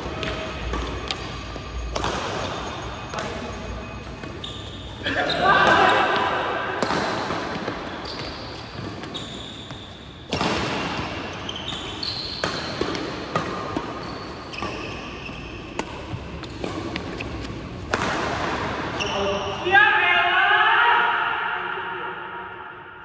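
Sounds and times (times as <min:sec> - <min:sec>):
rackets striking shuttlecock: 0:00.0 - 0:04.4, 0:05.6 - 0:19.0
shoes squeaking on court floor: 0:00.0 - 0:19.6.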